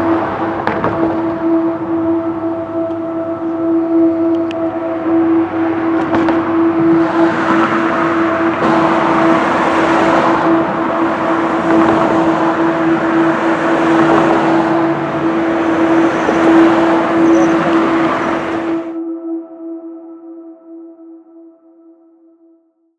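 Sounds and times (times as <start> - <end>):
rushing noise wash: 0.0 - 19.4
steady held drone tone: 0.0 - 22.4.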